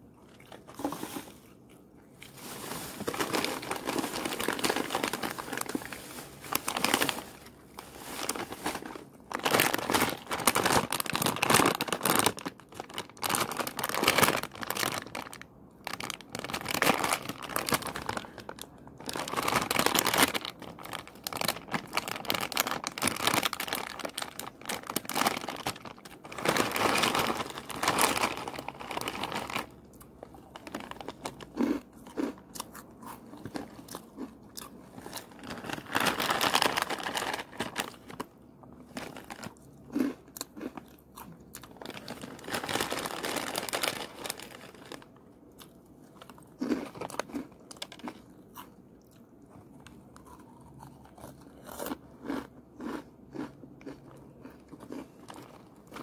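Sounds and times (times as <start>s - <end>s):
crunching and chewing: 0.1s - 56.0s
foil snack bag crinkling: 2.2s - 32.4s, 34.6s - 45.2s, 46.2s - 48.3s.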